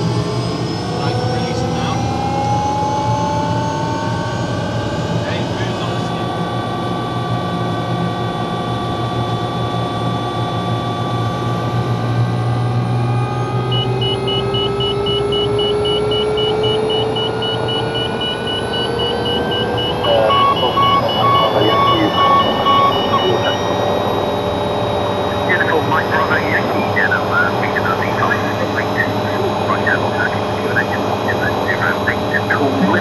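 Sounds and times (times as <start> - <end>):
helicopter turbine whine rising: 0.0 - 33.0
low hum: 12.3 - 33.0
fast electronic beeping: 13.6 - 33.0
lower beep: 13.6 - 33.0.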